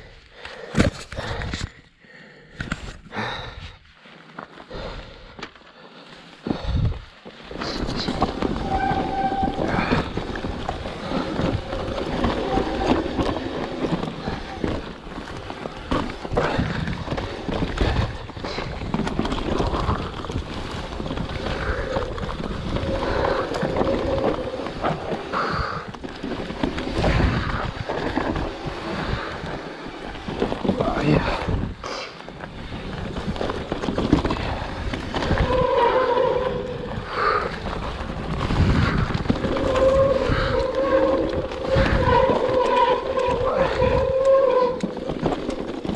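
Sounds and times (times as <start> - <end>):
bike tyres on rough ground: 0.0 - 45.9
bike rattling and knocking: 6.4 - 45.9
wind on microphone: 19.6 - 29.6, 34.0 - 45.0.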